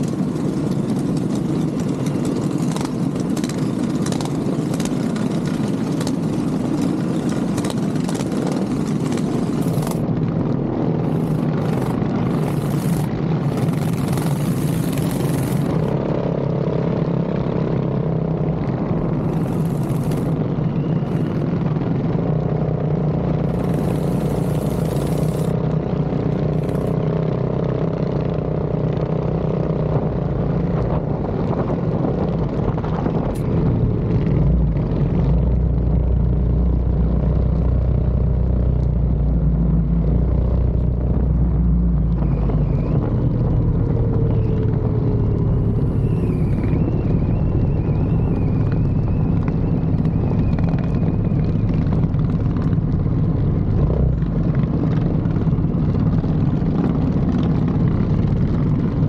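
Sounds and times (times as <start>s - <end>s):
minibike engine running: 0.0s - 59.0s.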